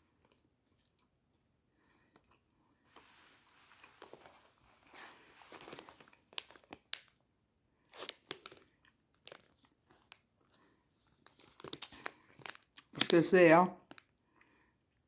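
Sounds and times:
chewing soft candy: 0:00.1 - 0:02.6, 0:07.9 - 0:13.2.

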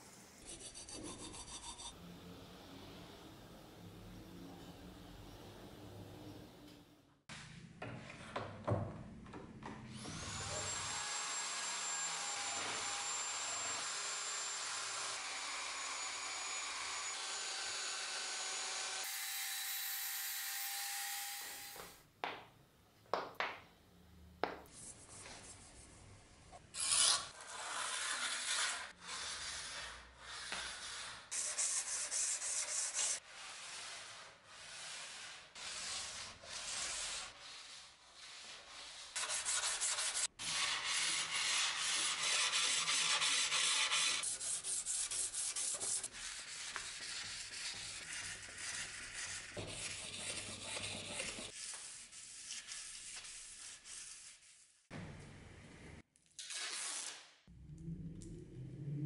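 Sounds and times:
hand sanding strokes: 0:27.3 - 0:54.9.

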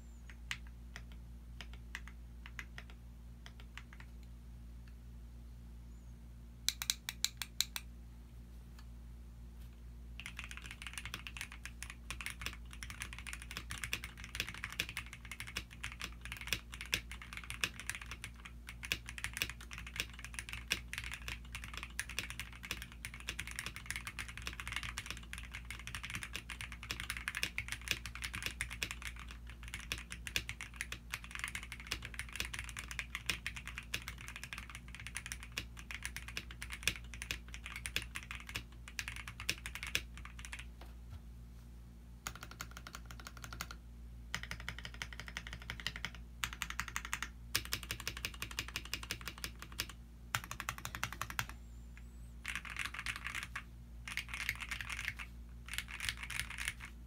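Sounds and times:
fast typing on mechanical keyboard: 0:10.2 - 0:40.7, 0:42.2 - 0:51.6, 0:52.4 - 0:57.0.

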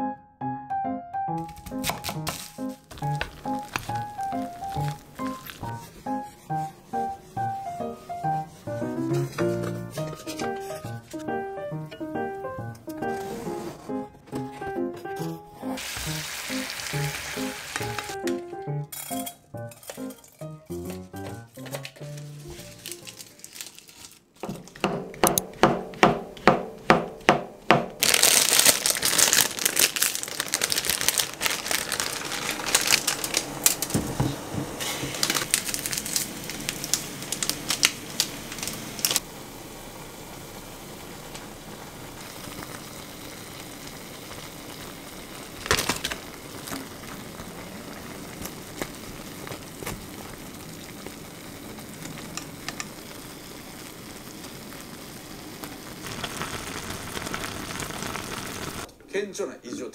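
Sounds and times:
plastic packet crinkling and tearing: 0:01.4 - 0:11.2, 0:15.8 - 0:18.3, 0:20.8 - 0:24.8, 0:28.0 - 0:34.2, 0:34.8 - 0:39.2, 0:44.3 - 0:54.9, 0:55.6 - 0:58.9
knife chopping on wooden board: 0:24.4 - 0:28.0.

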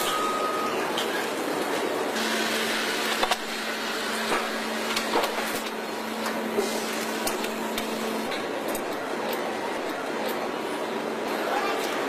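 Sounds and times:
machinery hiss and hum: 0:00.0 - 0:12.0.

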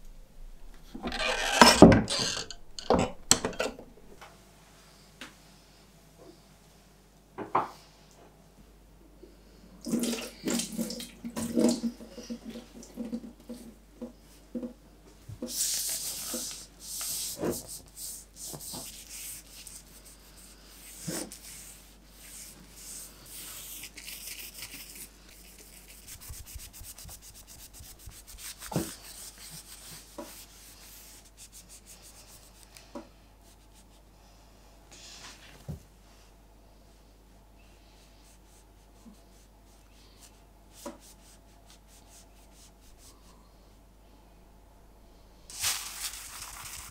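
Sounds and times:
knocks and clatter of objects: 0:00.8 - 0:04.2.

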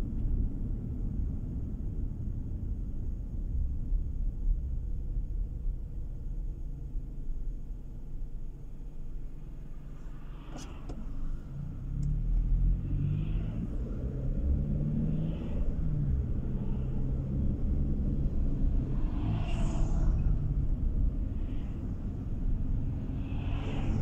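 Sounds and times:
car engine and tyre noise: 0:00.0 - 0:24.0
truck passing with rush of air: 0:10.2 - 0:24.0.

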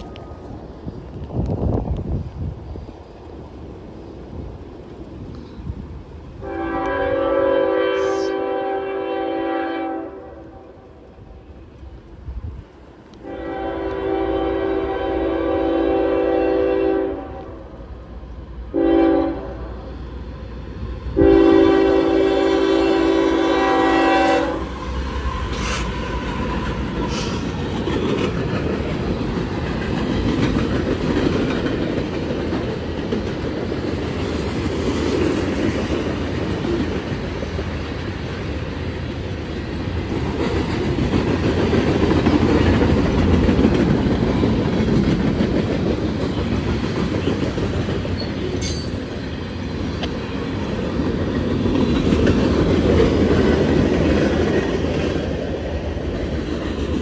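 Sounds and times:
train wheels rumbling on rails: 0:00.0 - 0:57.0
locomotive air horn blasts: 0:06.4 - 0:10.7, 0:13.2 - 0:17.6, 0:18.7 - 0:19.7, 0:21.2 - 0:24.7
wheels clicking over rail joints: 0:25.4 - 0:57.0.

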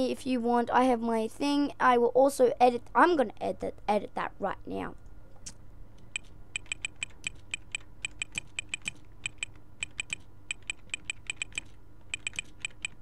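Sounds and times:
computer keyboard typing: 0:06.1 - 0:13.0.

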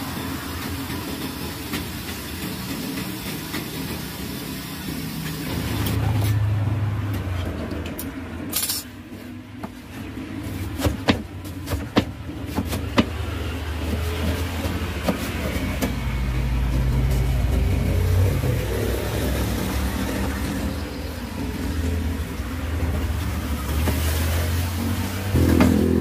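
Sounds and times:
low engine hum: 0:15.6 - 0:26.0.

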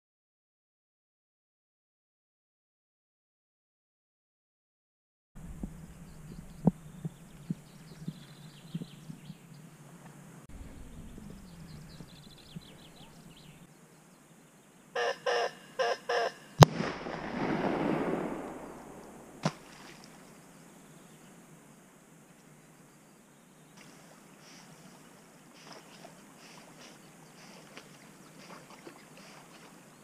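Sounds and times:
small birds chirping: 0:05.6 - 0:14.9, 0:22.5 - 0:30.0
larger bird calling: 0:15.0 - 0:16.6
sharp crack: 0:16.6 - 0:19.8.

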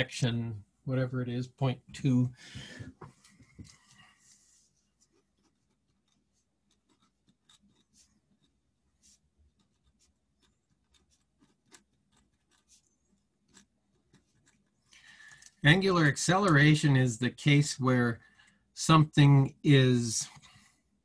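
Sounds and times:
pen scratching on paper: 0:03.7 - 0:14.9.

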